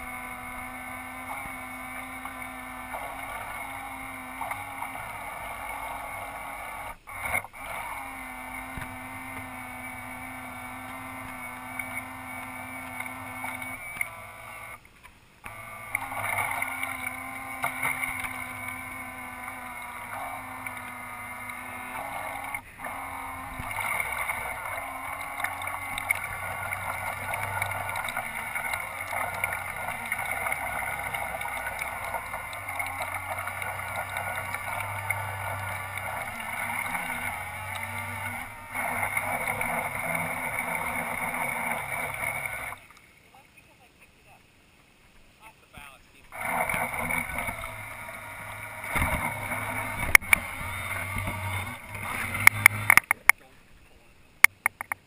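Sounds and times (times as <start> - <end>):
model boat motor whine: 0.0 - 44.4, 45.4 - 55.0
water around hull: 0.0 - 55.0.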